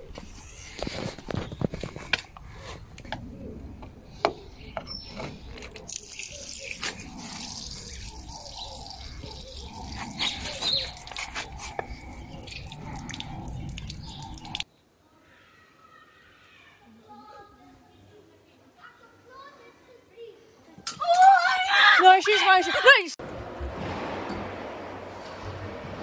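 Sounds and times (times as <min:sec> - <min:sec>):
fluid pouring onto brick paving: 0:05.4 - 0:14.6.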